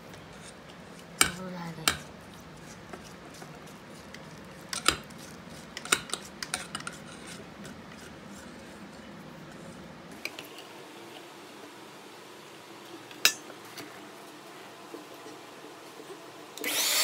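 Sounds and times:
spatula scraping metal bowl: 0.3s - 9.0s.

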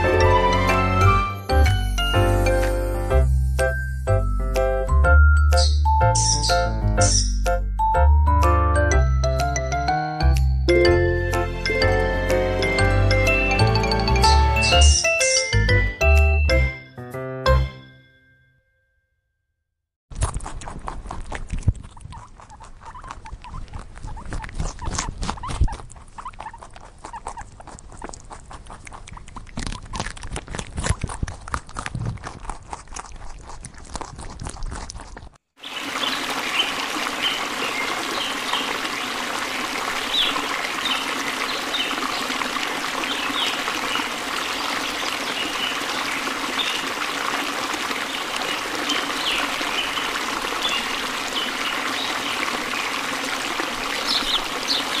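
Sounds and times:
hummingbirds chirping: 5.5s - 7.3s, 48.1s - 53.0s, 54.0s - 55.0s
fountain bubbling: 35.6s - 55.0s.

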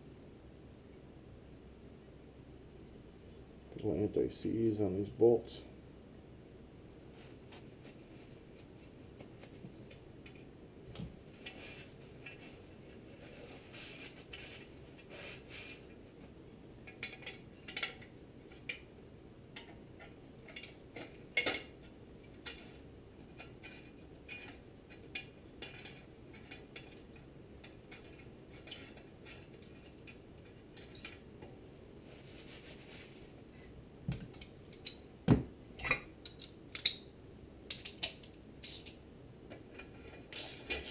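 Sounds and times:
small metal clinks and taps: 23.3s - 31.2s, 34.2s - 35.1s, 35.8s - 37.1s, 37.7s - 39.7s.

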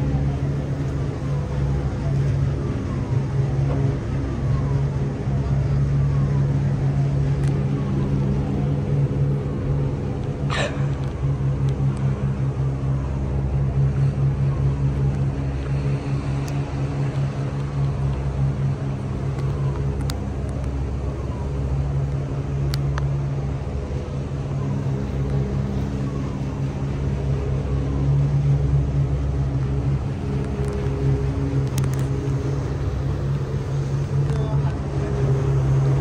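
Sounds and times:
boat engine humming: 0.0s - 36.0s
faint clicks: 19.3s - 20.8s, 31.6s - 32.2s.

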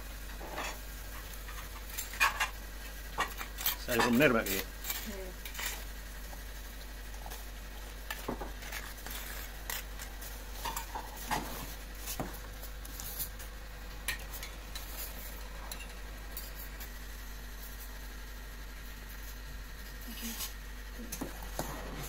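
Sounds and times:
cutlery clinking against a plate: 3.2s - 4.3s.

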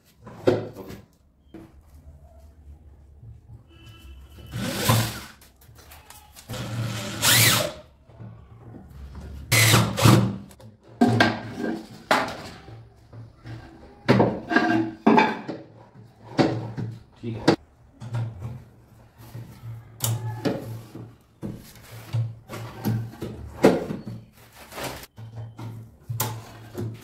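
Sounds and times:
electric drill driving screws: 6.6s - 7.8s.

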